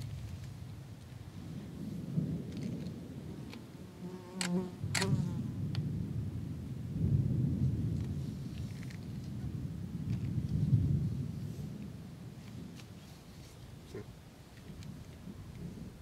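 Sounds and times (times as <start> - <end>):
distant thunder rumbling: 0.0 - 4.1, 4.7 - 12.8
insect buzz: 3.8 - 5.4.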